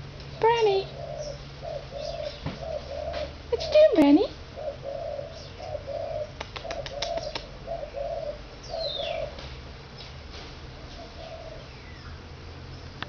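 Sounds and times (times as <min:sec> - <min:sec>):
dove cooing: 0:00.0 - 0:09.6, 0:10.7 - 0:12.4
sharp clicks: 0:06.4 - 0:07.5.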